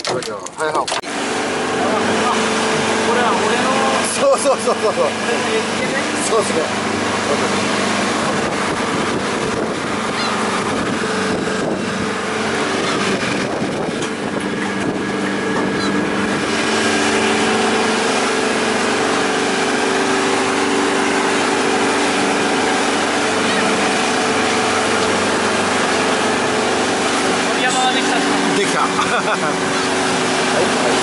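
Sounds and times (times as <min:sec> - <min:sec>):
boat engine running: 0:00.0 - 0:31.0
rushing water: 0:00.0 - 0:31.0
wind: 0:00.0 - 0:31.0.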